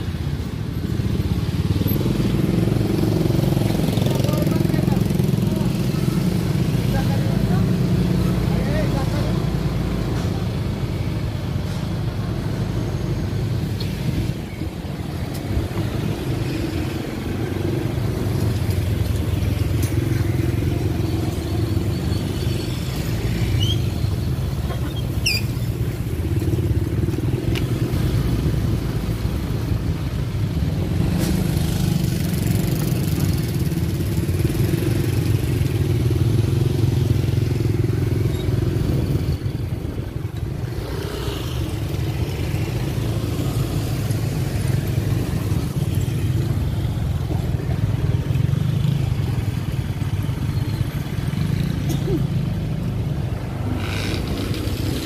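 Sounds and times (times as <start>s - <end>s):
brief high squeaks: 24.8s - 25.7s.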